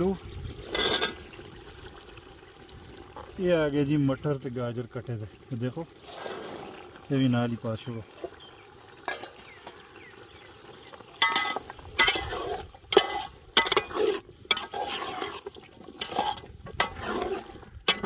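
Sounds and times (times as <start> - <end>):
ladle scraping a metal pot: 0.6 - 1.3, 9.0 - 9.9, 11.2 - 18.0.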